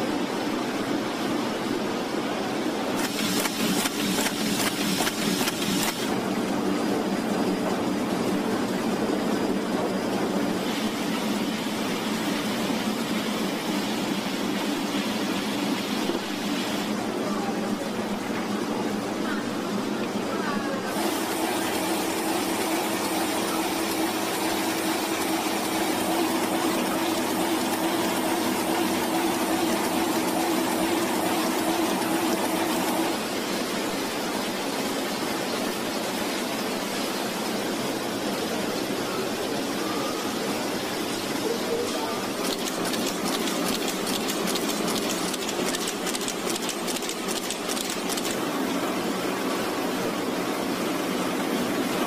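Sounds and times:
continuous hum: 0.0 - 52.0
rapid mechanical clicking: 3.0 - 6.2, 42.3 - 48.4
machinery whirring: 3.0 - 6.7, 20.8 - 33.2, 41.7 - 48.4.

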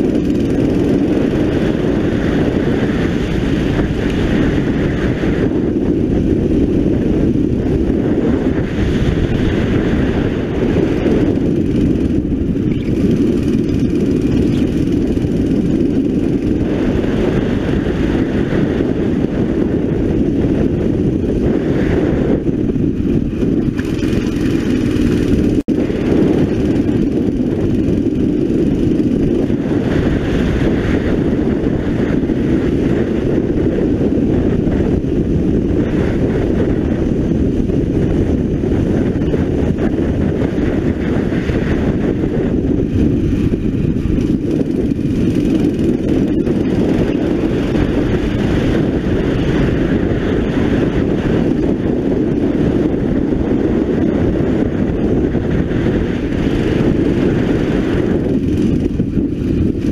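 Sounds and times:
kart engine running hard: 0.0 - 59.9.

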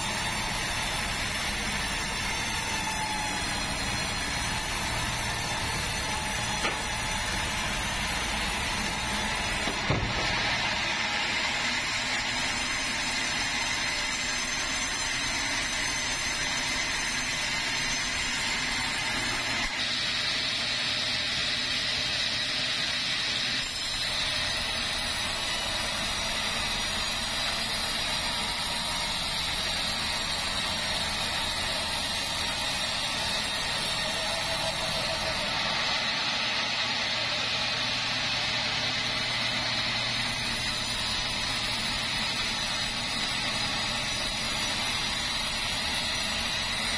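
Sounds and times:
band saw whining through logs: 0.0 - 46.9
sawmill machine drone: 0.0 - 46.9.

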